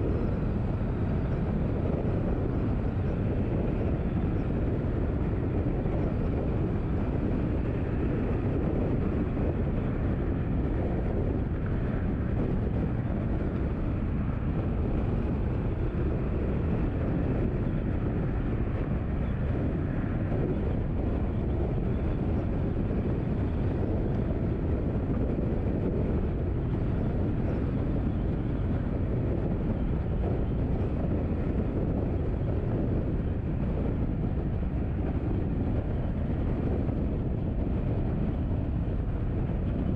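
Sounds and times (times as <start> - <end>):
car road and engine rumble: 0.0 - 39.9.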